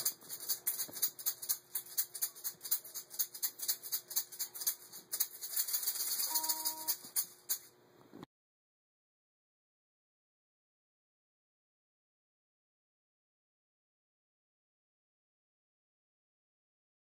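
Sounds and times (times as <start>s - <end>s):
gourd shaker rattling: 0.0s - 7.8s.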